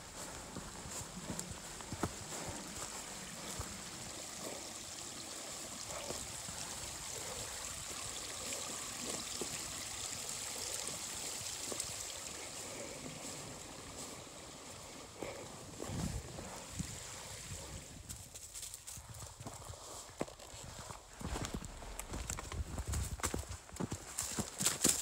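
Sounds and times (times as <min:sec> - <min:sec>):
footsteps on trail: 0:00.0 - 0:04.7, 0:10.6 - 0:25.0
creek running over stones: 0:00.0 - 0:25.0.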